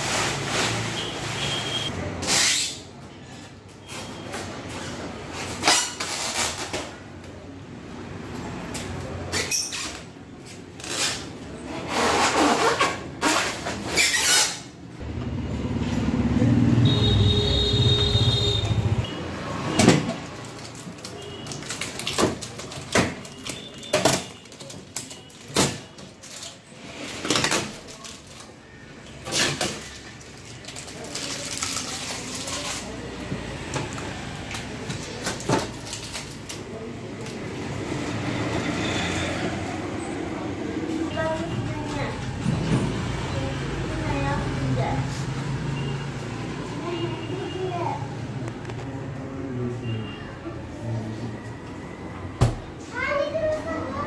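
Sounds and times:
plastic packaging rustling and scraping: 0.0s - 7.1s, 20.2s - 37.5s.

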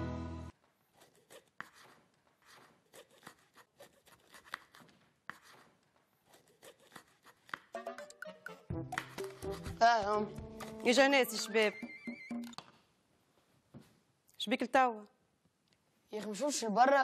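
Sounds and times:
knife scraping on cutting board: 0.9s - 7.8s, 9.0s - 9.8s.

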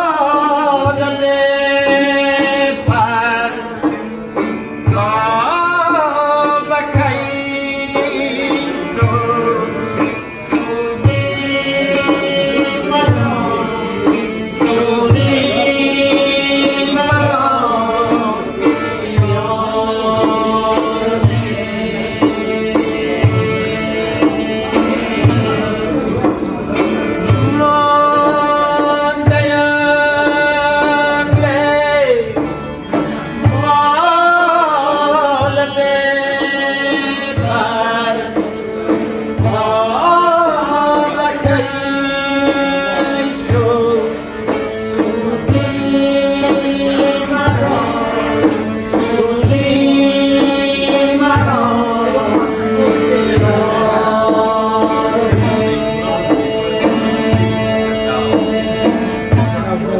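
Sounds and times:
accordion: 0.0s - 59.9s
long-necked lute: 0.0s - 59.9s
men singing: 0.0s - 59.9s
frame drum beat: 1.8s - 29.7s.

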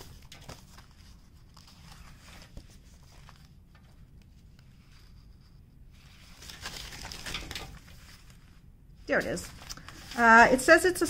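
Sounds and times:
paper rustling and ticking: 0.0s - 5.4s, 6.0s - 8.5s.

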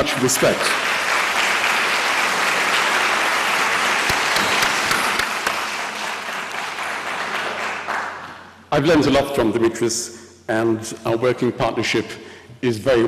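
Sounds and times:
large audience applauding: 0.0s - 8.6s.

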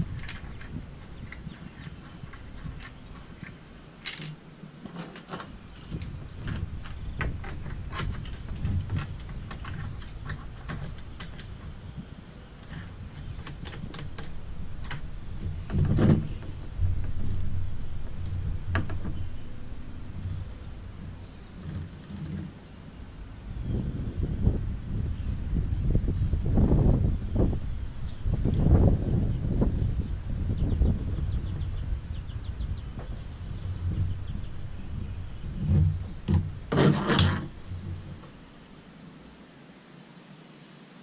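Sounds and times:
metal clinks of wrenches and bolts: 0.1s - 11.6s
low rumble: 5.5s - 38.8s.

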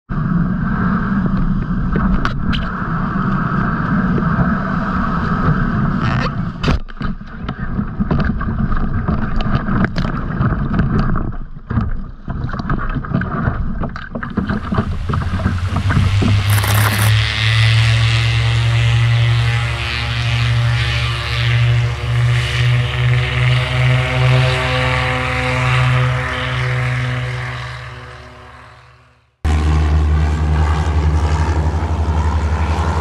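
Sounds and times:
water splashing against kayak hull: 7.5s - 16.5s
paddle strokes in water: 8.1s - 16.4s.

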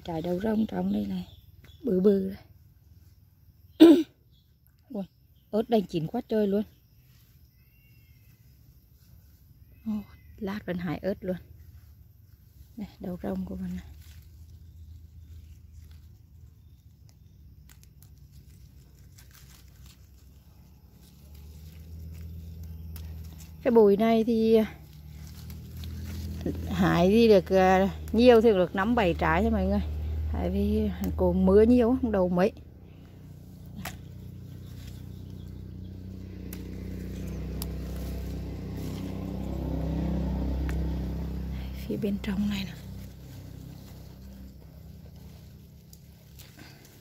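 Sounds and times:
leaves and vines rustling: 0.0s - 47.0s
low engine hum: 0.0s - 47.0s
low steady rumble: 6.7s - 47.0s
light crackles: 11.5s - 23.7s, 24.6s - 26.8s, 33.0s - 47.0s.

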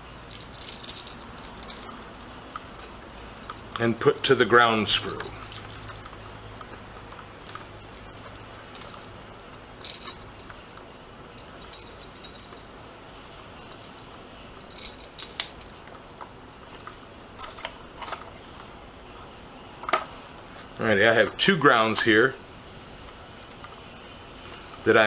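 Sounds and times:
wire clicks and metallic rattles: 0.3s - 12.6s, 13.6s - 19.2s
high pulsed trill: 0.9s - 3.2s, 12.0s - 13.7s, 22.2s - 23.4s.

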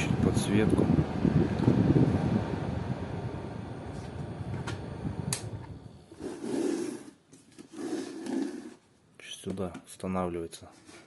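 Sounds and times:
portable fan airflow roar: 0.0s - 8.8s.

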